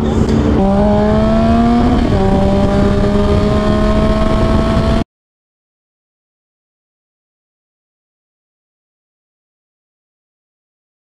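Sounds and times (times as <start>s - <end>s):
motorcycle engine accelerating: 0.0s - 5.0s.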